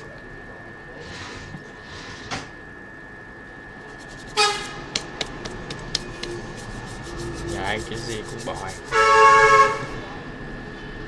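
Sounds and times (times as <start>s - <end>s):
vehicle horn toot: 4.4s - 4.8s, 8.9s - 10.0s.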